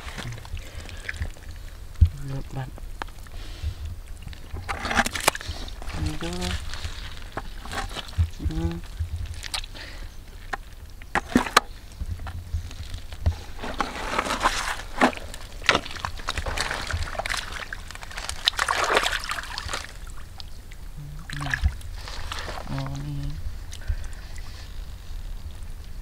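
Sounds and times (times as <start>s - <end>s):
muddy water sloshing: 0.0s - 25.7s.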